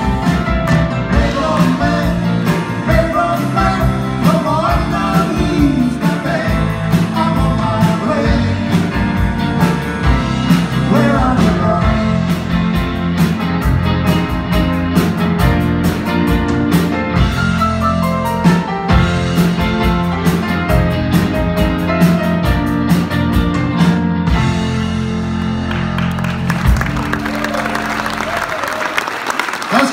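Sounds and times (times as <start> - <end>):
drum kit beat: 0.0 - 27.5
bass guitar: 0.0 - 28.8.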